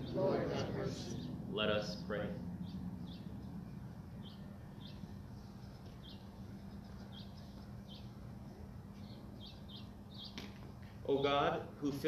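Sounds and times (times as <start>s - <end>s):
steady low hum: 0.0s - 12.0s
small bird chirping: 6.0s - 8.2s, 8.9s - 10.4s.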